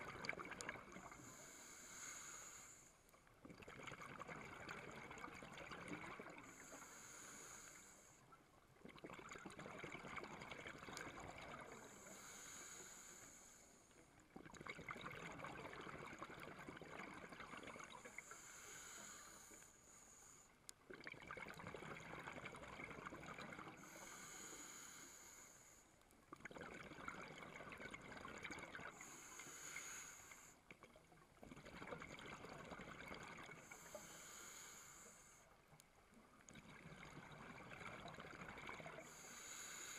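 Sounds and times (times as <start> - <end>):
regulator inhale hiss: 0.9 - 3.1, 6.4 - 8.3, 11.7 - 14.0, 18.0 - 20.6, 23.8 - 26.0, 28.9 - 30.7, 33.6 - 35.6, 39.0 - 39.9.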